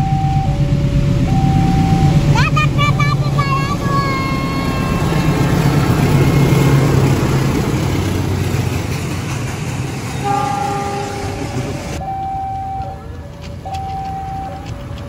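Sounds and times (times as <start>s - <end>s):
diesel engine rumble: 0.0s - 15.0s
train rolling noise: 0.0s - 15.0s
train horn chord: 10.1s - 11.7s.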